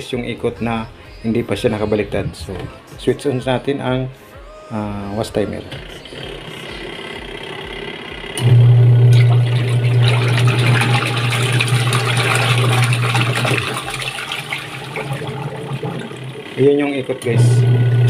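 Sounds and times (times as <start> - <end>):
washing machine motor hum: 4.8 - 18.0
water churning in tub: 5.6 - 18.0.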